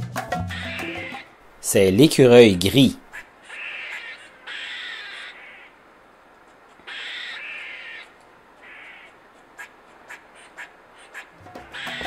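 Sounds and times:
harsh cawing calls: 0.4s - 1.3s, 2.7s - 12.0s.

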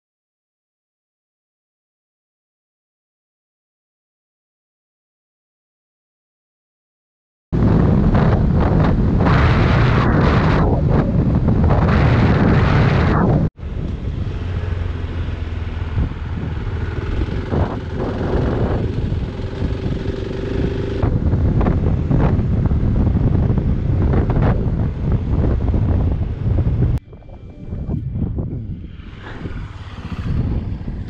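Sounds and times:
wind buffeting microphone: 7.6s - 31.0s
motorcycle engine running: 13.8s - 24.2s.

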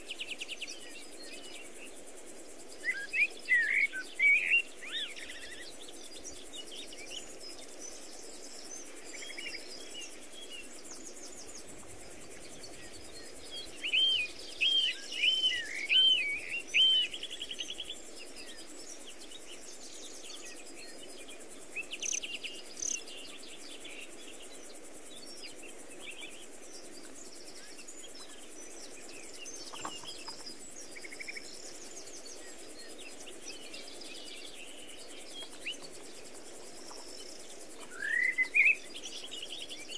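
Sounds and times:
low background hiss: 0.0s - 39.9s
birds singing and calling: 2.6s - 39.9s.

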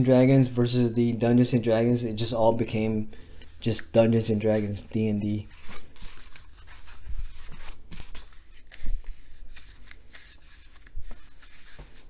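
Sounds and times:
pages rustling and flapping: 5.5s - 12.0s.

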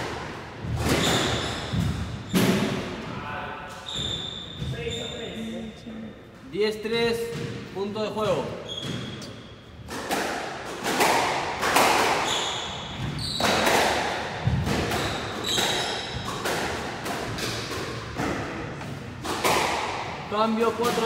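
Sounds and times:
squash ball struck by rackets: 0.0s - 3.0s, 9.8s - 21.0s
sneakers squeaking on wooden floor: 0.6s - 2.8s, 3.7s - 5.7s, 8.2s - 9.9s, 12.2s - 16.4s.

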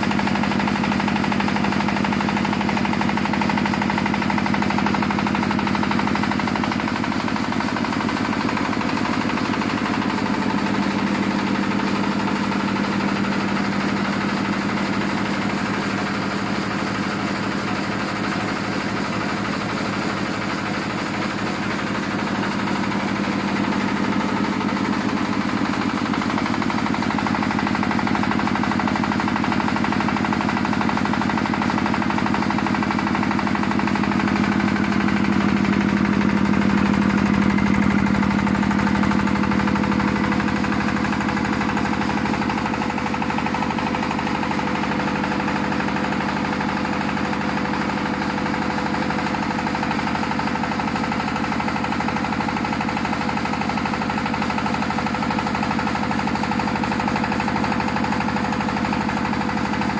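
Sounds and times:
diesel engine knocking: 0.0s - 59.9s.

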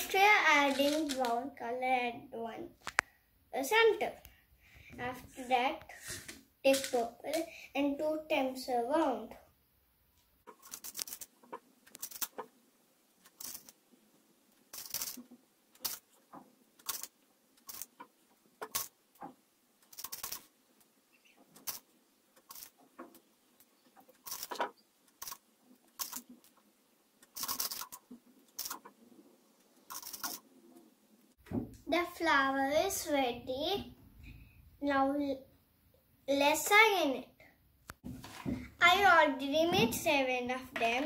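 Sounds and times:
plastic beads rattling and clicking: 0.7s - 1.3s, 6.7s - 7.0s, 10.5s - 12.5s, 13.2s - 13.8s, 14.7s - 16.2s, 16.8s - 18.9s, 19.8s - 20.5s, 21.6s - 22.8s, 24.1s - 26.5s, 27.2s - 28.9s, 29.9s - 30.4s.

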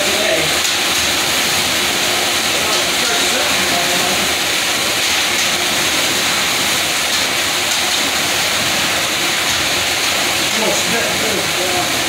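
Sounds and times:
loud rushing hiss: 0.0s - 12.0s.

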